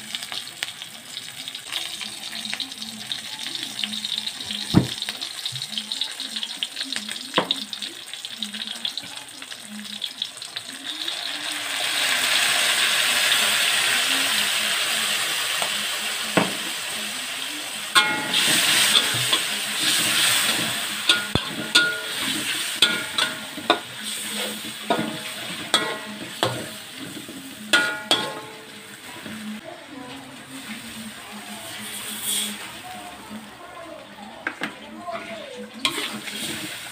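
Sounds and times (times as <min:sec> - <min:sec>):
food sizzling in a wok: 0:00.0 - 0:36.9
metal spatula scraping a wok: 0:18.0 - 0:29.0, 0:31.8 - 0:32.7, 0:35.1 - 0:36.9.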